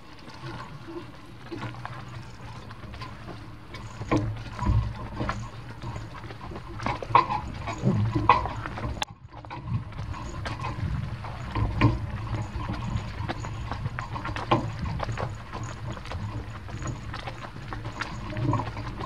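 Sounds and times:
cart wheels and harness rumbling: 0.0 - 19.0
horse hoofbeats: 0.0 - 19.0.

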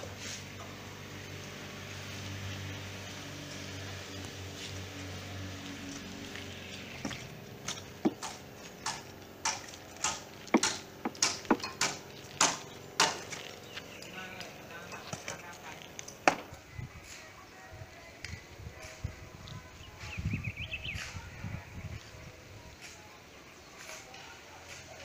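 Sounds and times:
digging tool striking earth: 7.0 - 13.5.

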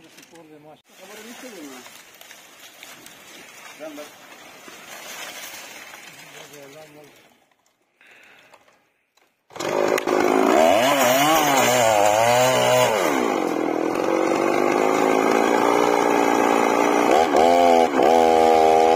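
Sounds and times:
chainsaw engine running: 9.5 - 18.9.

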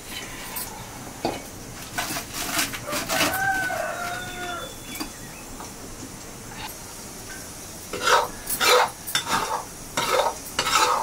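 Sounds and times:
rooster crowing: 2.8 - 5.2.

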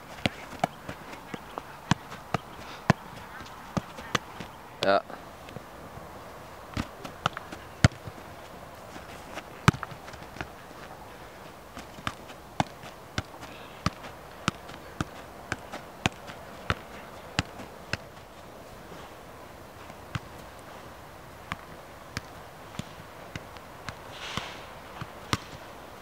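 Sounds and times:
soccer ball taps off foot: 6.7 - 8.2, 9.4 - 10.6, 11.7 - 18.2, 25.0 - 25.6.

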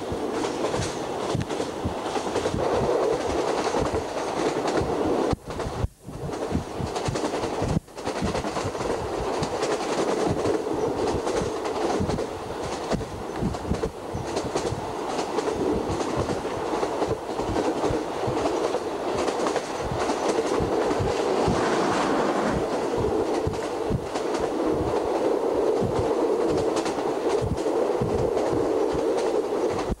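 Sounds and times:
train rumble: 0.0 - 30.0.

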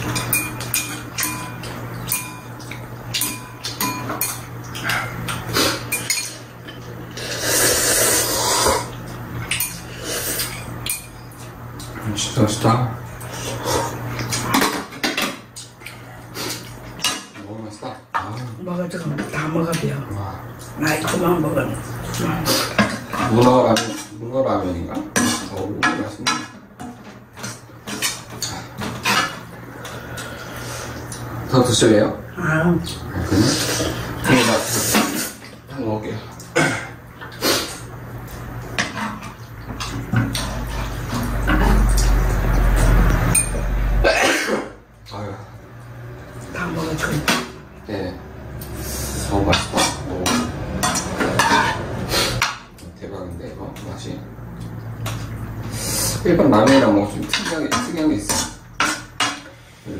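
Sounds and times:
chopsticks clinking against bowls: 0.0 - 6.4
loud noodle slurp: 7.2 - 8.9.

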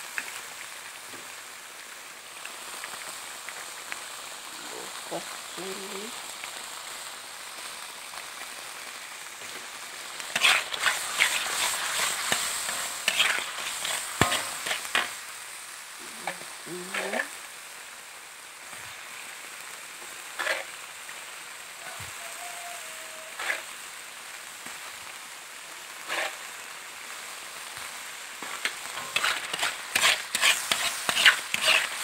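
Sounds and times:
paste sizzling in hot oil: 0.0 - 32.0
spatula scraping a wok: 10.2 - 15.2, 16.2 - 17.3, 20.0 - 20.8, 23.3 - 23.7, 26.0 - 26.5, 28.4 - 32.0.

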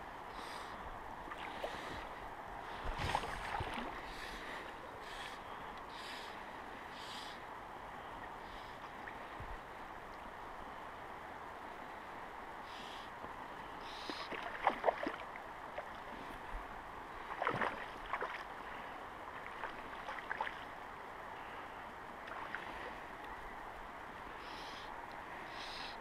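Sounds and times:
river water rushing: 0.0 - 26.0
water splashes and slaps: 2.8 - 4.1, 14.0 - 16.1, 17.2 - 18.5, 19.4 - 20.7.

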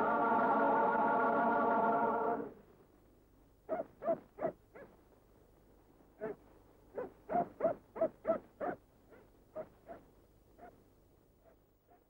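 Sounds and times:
dog barking: 3.7 - 4.9, 6.2 - 10.8, 11.4 - 12.0.

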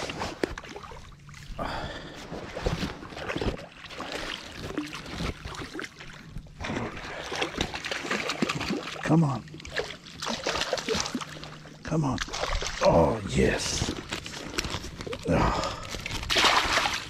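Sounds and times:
fish splashing in water: 3.2 - 9.0, 9.6 - 12.9, 16.0 - 17.0.

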